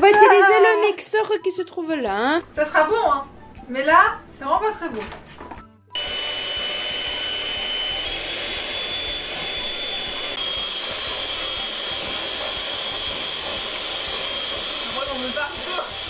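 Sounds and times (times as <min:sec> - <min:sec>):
electric hand mixer whining: 0:06.0 - 0:16.0.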